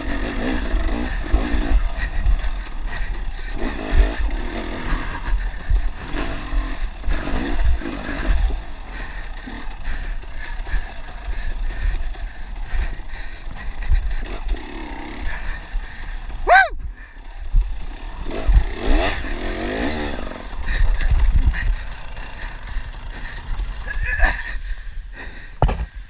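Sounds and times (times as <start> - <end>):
dirt bike engine revving: 0.0 - 24.7
bike knocking and clattering: 25.6 - 26.0.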